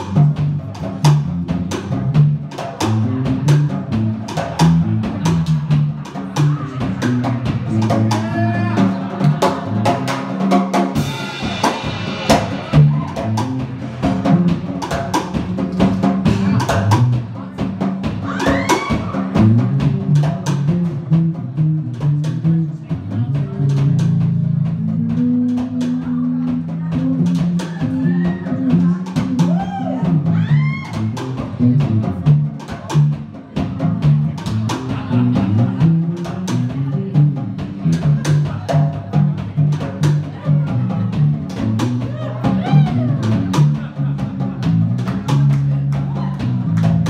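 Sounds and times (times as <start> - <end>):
drum struck with sticks: 0.0 - 47.0
electric bass line: 0.0 - 47.0
guitar: 0.0 - 47.0.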